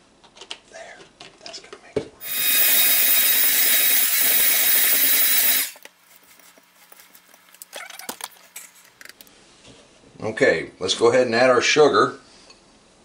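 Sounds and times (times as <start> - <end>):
electric hand mixer whirring: 2.2 - 5.8.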